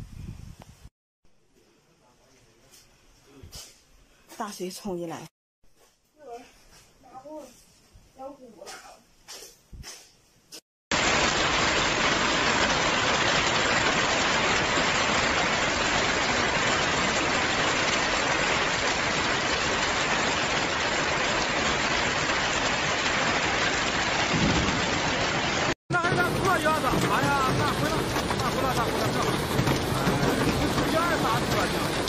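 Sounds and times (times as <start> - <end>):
hail falling hard: 10.9 - 32.0.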